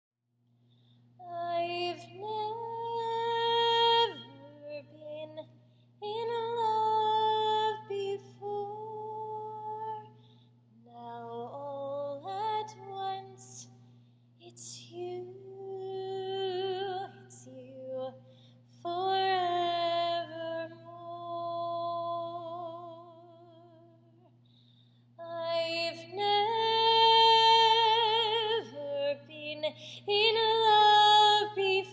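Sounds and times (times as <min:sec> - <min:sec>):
woman singing unaccompanied: 0:01.2 - 0:10.2, 0:10.8 - 0:13.8, 0:14.4 - 0:18.2, 0:18.8 - 0:24.0, 0:25.2 - 0:31.9.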